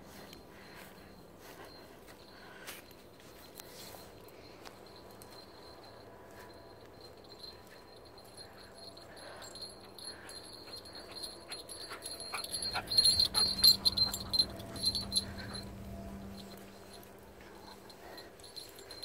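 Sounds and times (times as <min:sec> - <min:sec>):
clicking and jingling: 0:01.7 - 0:19.0.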